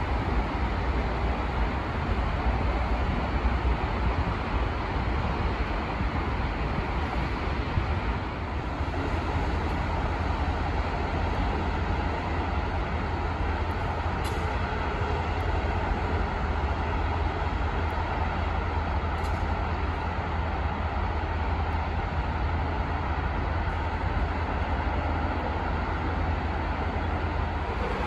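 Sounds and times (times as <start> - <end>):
engine low rumble with hiss: 0.0 - 28.0.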